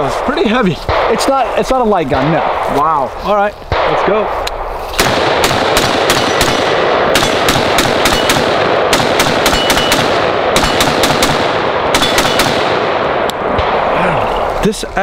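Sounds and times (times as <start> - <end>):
rifle firing rapid shots: 5.0 - 13.9.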